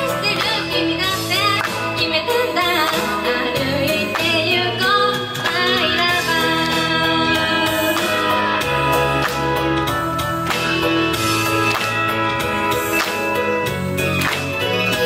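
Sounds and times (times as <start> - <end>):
woman singing into microphone: 0.0 - 8.6
pop backing track: 0.0 - 15.0.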